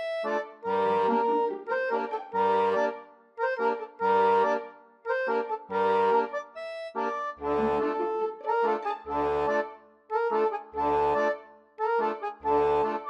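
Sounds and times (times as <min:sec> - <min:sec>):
background music melody with bass: 0:00.0 - 0:13.0.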